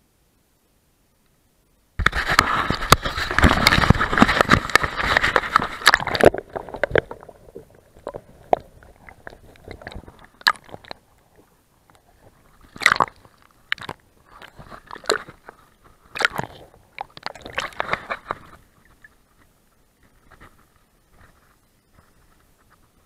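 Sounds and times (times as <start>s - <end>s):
crackling clicks: 2.0s - 11.0s
sea water splashing on camera: 2.0s - 11.4s, 12.1s - 19.1s.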